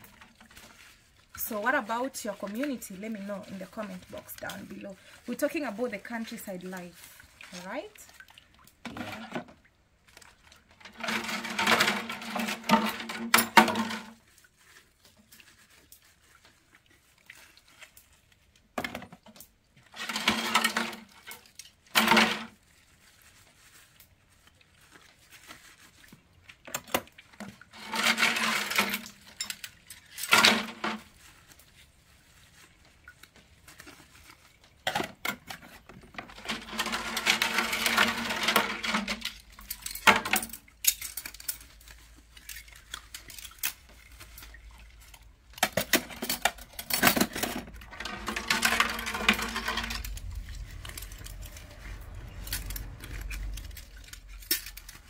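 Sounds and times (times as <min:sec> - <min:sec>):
metal kitchenware clinking and scraping: 0:10.8 - 0:14.2, 0:35.0 - 0:44.6, 0:45.5 - 0:55.0.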